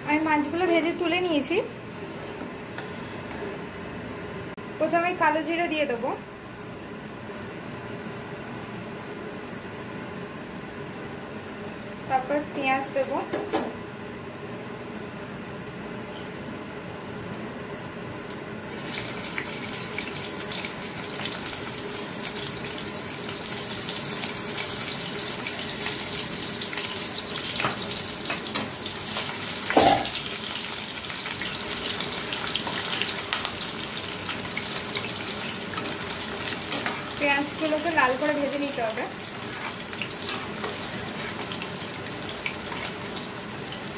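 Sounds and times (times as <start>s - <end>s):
onions sizzling in hot oil: 18.7s - 43.9s.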